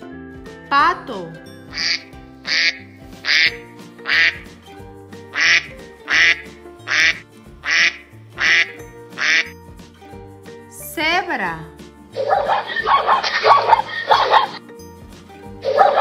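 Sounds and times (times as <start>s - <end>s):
background music: 0.0s - 16.0s
duck quacking: 1.8s - 4.4s, 5.3s - 9.5s, 12.2s - 14.6s, 15.7s - 16.0s.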